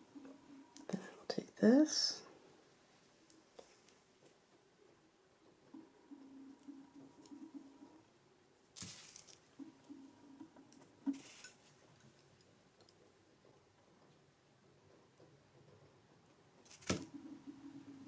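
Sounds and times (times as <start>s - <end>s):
faint rustles of jewelry handling: 8.7s - 9.6s, 11.1s - 13.1s.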